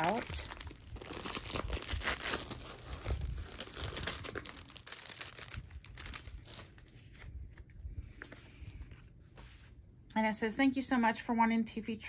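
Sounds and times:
plastic wrap crinkling: 0:00.0 - 0:08.4.

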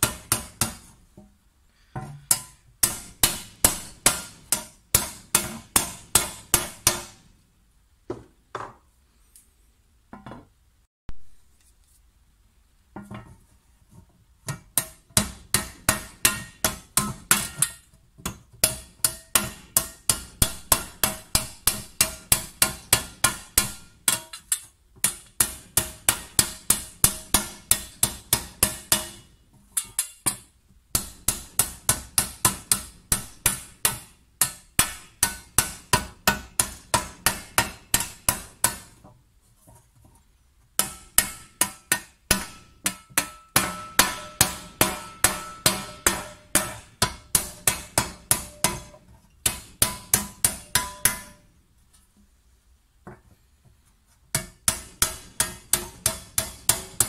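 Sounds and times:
hammer striking copper tray: 0:00.0 - 0:00.9, 0:02.0 - 0:07.2, 0:14.5 - 0:30.4, 0:31.0 - 0:39.0, 0:40.8 - 0:51.4, 0:54.4 - 0:57.0.

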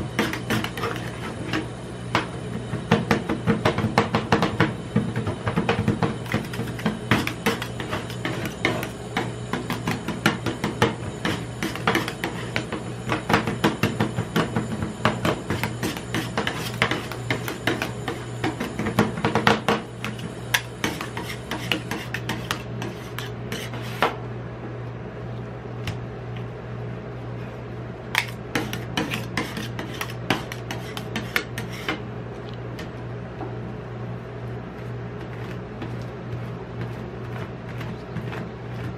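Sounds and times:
metal spatulas chopping and scraping: 0:00.0 - 0:02.3, 0:05.6 - 0:14.5, 0:15.2 - 0:24.1, 0:28.2 - 0:32.0
steady low hum: 0:00.0 - 0:38.9.

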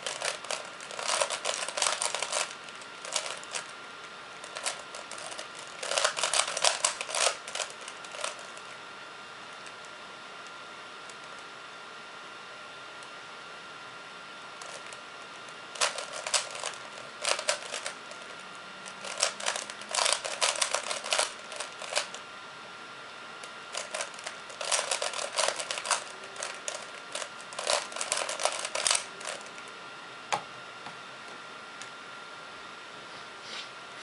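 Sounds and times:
puzzle cube clicking: 0:00.0 - 0:03.6, 0:04.5 - 0:08.5, 0:15.8 - 0:18.0, 0:19.0 - 0:22.1, 0:23.7 - 0:29.4.

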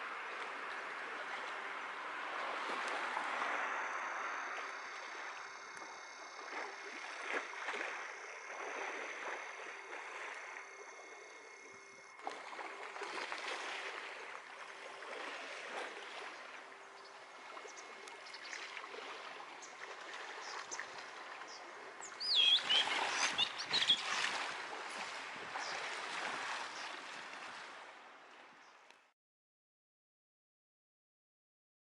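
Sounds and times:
outdoor background noise: 0:00.0 - 0:29.1
high bird chirps: 0:22.0 - 0:24.1.

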